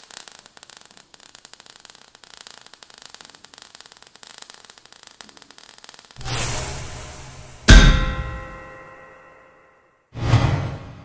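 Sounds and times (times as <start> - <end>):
sparks crackling over hiss: 0.0 - 8.6.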